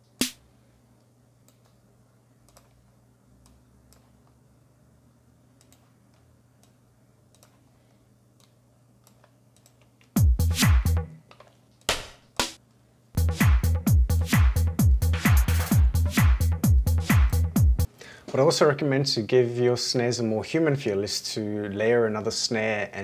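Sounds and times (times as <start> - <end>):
faint steady hum: 0.0 - 10.2
drum machine beat: 0.2 - 0.4, 10.2 - 11.2, 11.9 - 12.6, 13.2 - 17.9
computer mouse and keyboard clicks: 2.5 - 2.8, 3.4 - 4.4, 5.6 - 7.7, 8.4 - 10.2, 11.2 - 12.0.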